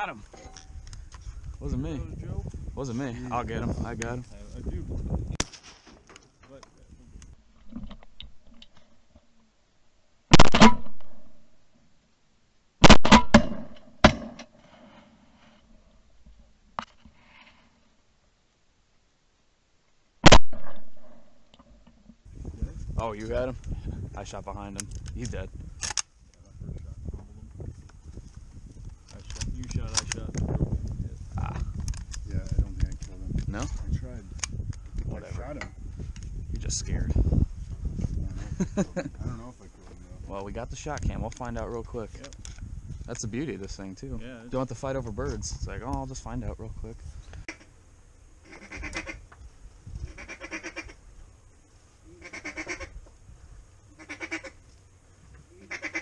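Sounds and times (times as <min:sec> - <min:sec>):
low wind rumble: 0:00.0 - 0:05.4, 0:06.5 - 0:08.5, 0:22.2 - 0:52.2
rustling of dry corn stalks: 0:04.1 - 0:09.4, 0:46.9 - 0:56.0
duck call quacking: 0:48.4 - 0:49.2, 0:50.1 - 0:51.0, 0:52.2 - 0:52.9, 0:54.0 - 0:54.6, 0:55.6 - 0:56.0.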